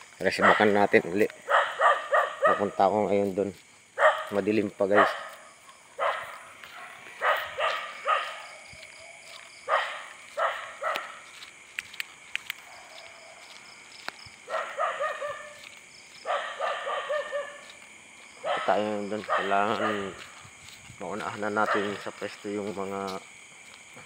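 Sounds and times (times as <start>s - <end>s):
dog barking: 0.3s - 2.8s, 4.0s - 8.7s, 9.6s - 11.3s, 14.4s - 15.6s, 16.2s - 17.7s, 18.4s - 20.2s, 21.6s - 22.1s.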